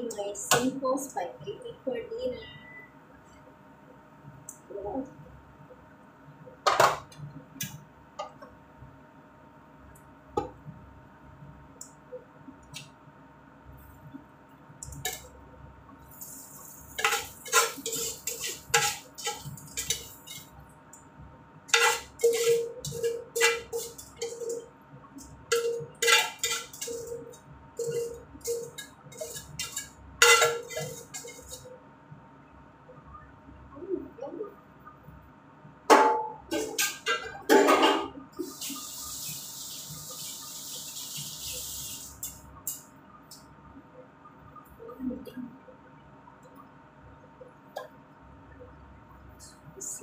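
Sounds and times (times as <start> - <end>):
metal tongs scraping a frying pan: 15.0 - 15.3, 16.2 - 20.5, 21.7 - 24.7, 25.5 - 31.7.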